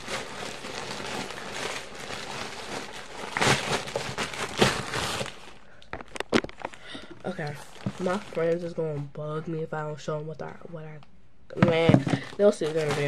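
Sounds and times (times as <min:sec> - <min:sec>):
plastic mailer bag crinkling: 0:00.0 - 0:08.9, 0:11.6 - 0:13.0.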